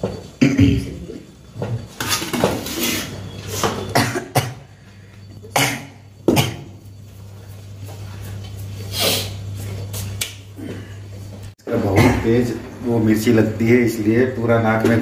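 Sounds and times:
person coughing: 0:03.9 - 0:04.7, 0:05.5 - 0:06.8.

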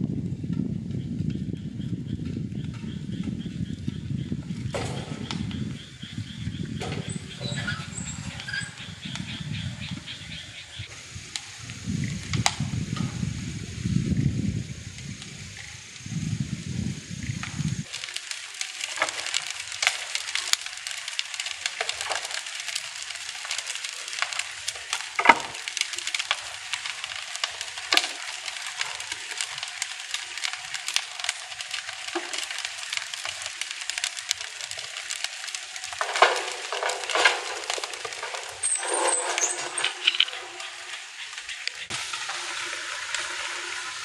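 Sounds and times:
wood fire crackling: 0:00.0 - 0:44.0
firewood knocking: 0:04.6 - 0:05.9, 0:06.7 - 0:07.6, 0:17.9 - 0:41.0.

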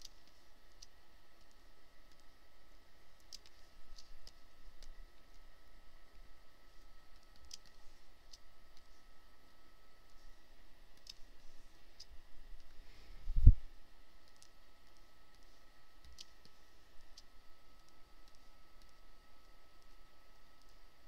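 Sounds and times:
computer mouse clicks: 0:00.0 - 0:02.3, 0:03.2 - 0:05.4, 0:07.1 - 0:08.9, 0:11.0 - 0:11.3, 0:14.2 - 0:20.0, 0:20.6 - 0:20.8
faint electrical whine: 0:00.0 - 0:21.0.

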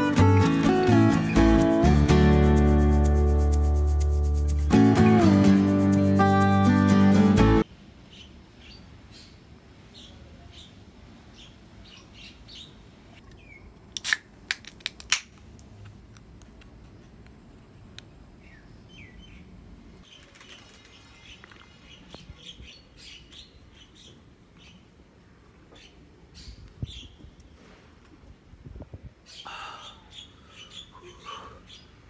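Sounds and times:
small birds chirping: 0:18.4 - 0:27.6, 0:29.2 - 0:32.0.

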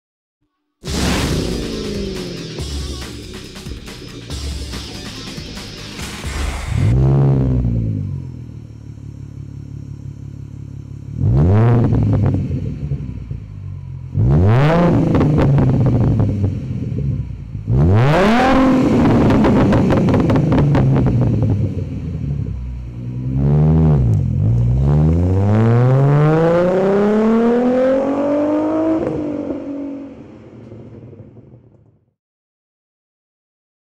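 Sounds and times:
car engine revving and accelerating: 0:06.0 - 0:09.2, 0:10.5 - 0:31.5.

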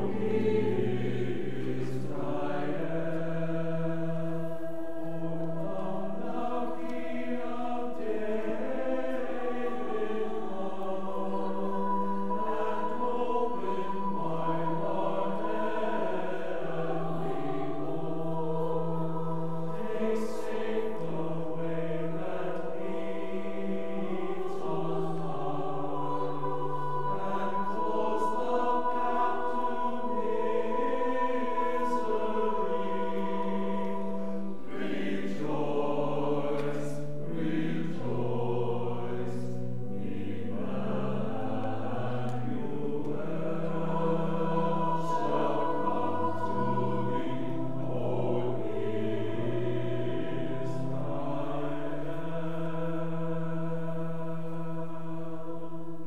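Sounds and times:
church choir singing: 0:00.0 - 0:56.0
long held low notes: 0:00.0 - 0:56.0.

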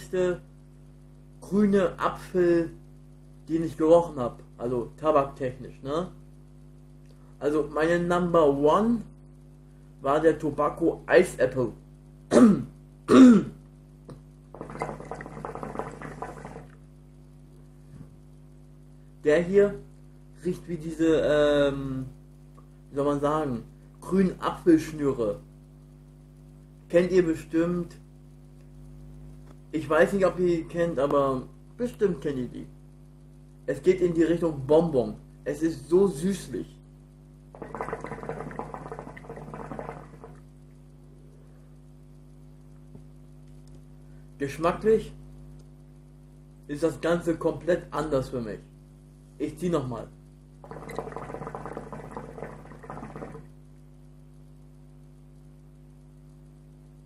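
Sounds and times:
low electrical hum: 0:00.0 - 0:57.0
hookah water bubbling: 0:14.1 - 0:16.9, 0:37.4 - 0:40.9, 0:50.6 - 0:53.7.

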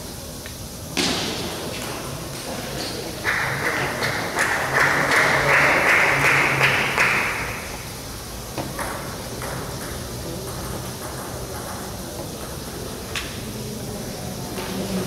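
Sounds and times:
table tennis ball bouncing: 0:08.5 - 0:13.3.

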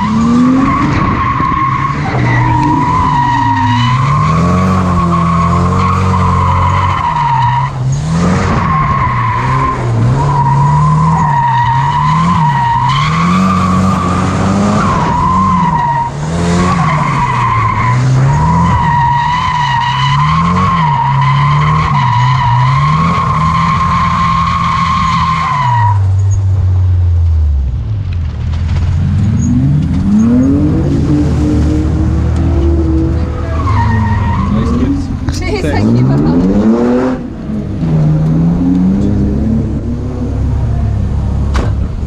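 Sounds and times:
car engine revving: 0:00.0 - 0:42.0
tyres squealing: 0:32.8 - 0:36.2.

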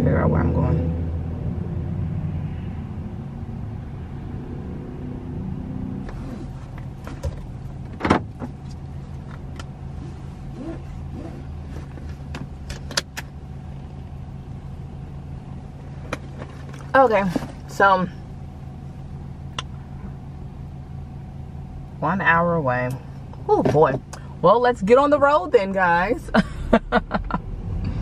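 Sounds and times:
car engine idling: 0:05.2 - 0:28.0.

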